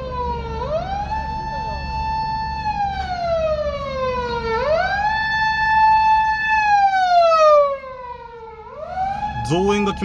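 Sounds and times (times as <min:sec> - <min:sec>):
police siren wailing: 0:00.0 - 0:10.0.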